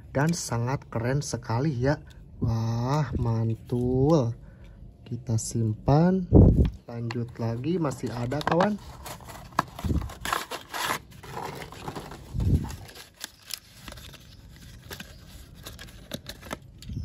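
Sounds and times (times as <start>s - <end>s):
packaging scraping and tearing: 7.3s - 17.0s.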